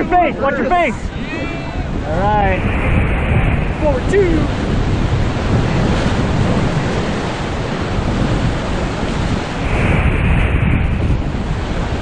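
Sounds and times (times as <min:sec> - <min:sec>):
whitewater rapids rushing: 0:00.0 - 0:12.0
wind rumble on microphone: 0:00.0 - 0:12.0.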